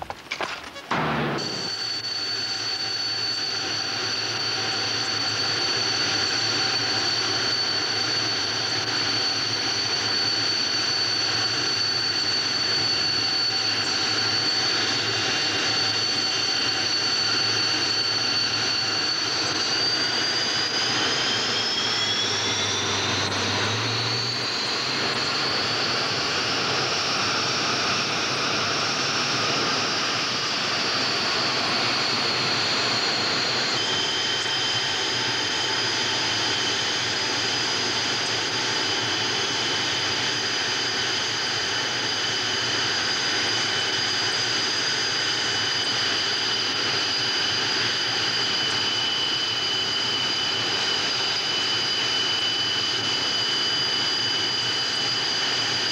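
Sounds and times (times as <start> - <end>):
jet engine turbine whine: 0.0 - 55.9.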